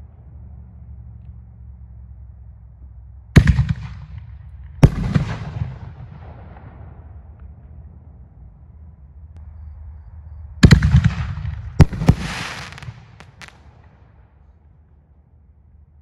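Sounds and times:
firework crackling: 11.8 - 13.9.

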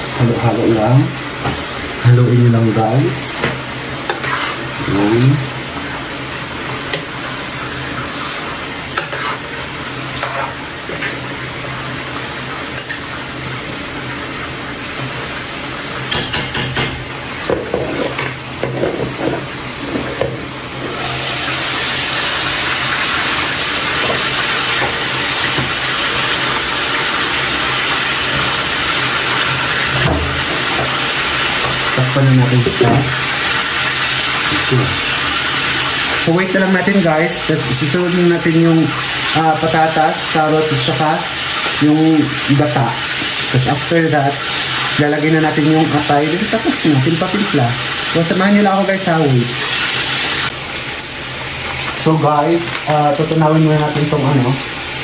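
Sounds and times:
chicken sizzling in a pan: 0.0 - 55.0
spatula scraping a pan: 4.1 - 4.8, 8.1 - 11.3, 17.6 - 20.2.

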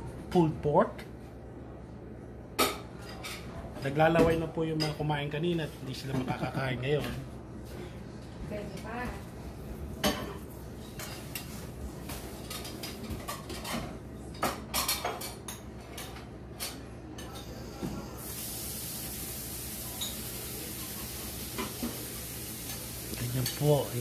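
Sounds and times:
steady hiss: 18.1 - 24.0.

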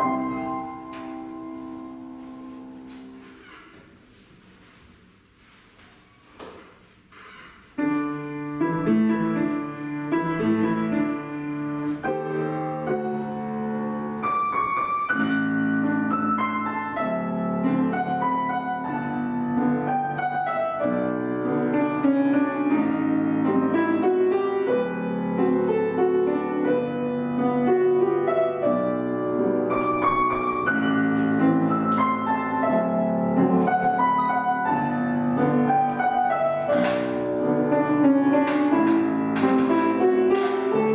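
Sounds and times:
piano playing chords and melody: 0.0 - 3.6, 7.8 - 40.9.

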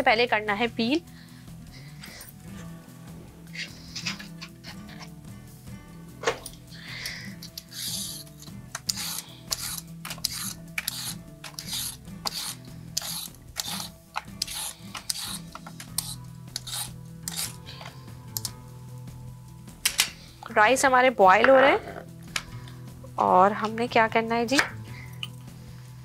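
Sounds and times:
soft background music: 0.0 - 26.0
carrot peeling scrapes: 7.4 - 17.7.

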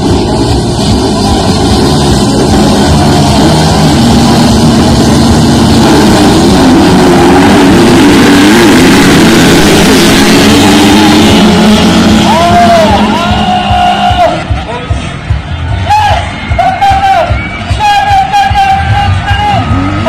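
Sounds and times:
motocross bikes revving: 0.0 - 15.4.

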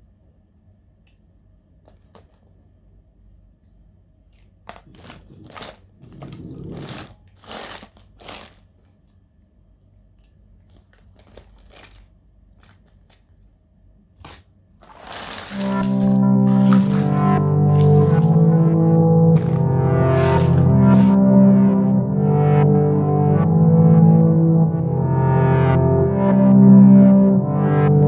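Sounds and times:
clicks and rattles of paint tubes: 10.6 - 13.5
music: 15.5 - 28.0.

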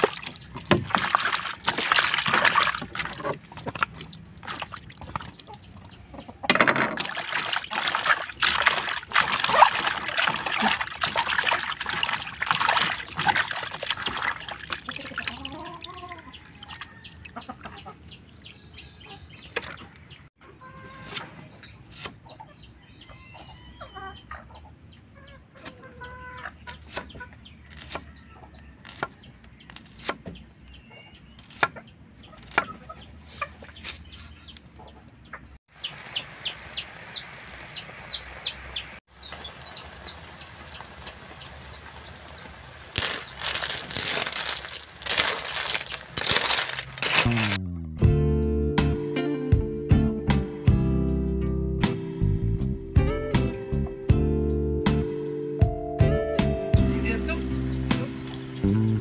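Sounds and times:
chickens clucking: 4.6 - 6.7, 12.8 - 28.7, 30.9 - 35.9.

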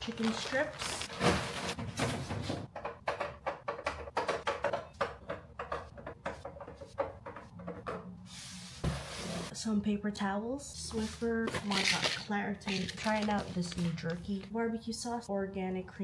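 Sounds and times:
groceries knocking and rustling: 0.0 - 8.0, 11.4 - 14.5.

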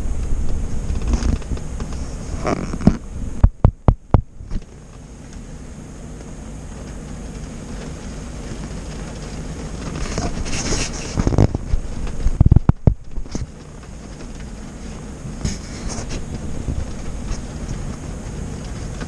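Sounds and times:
wind noise on microphone: 0.0 - 4.8, 7.5 - 19.0
car interior rumble: 0.0 - 19.0
rain on windshield: 0.0 - 19.0
heavy thumps and knocks: 0.2 - 4.7, 11.1 - 13.6.

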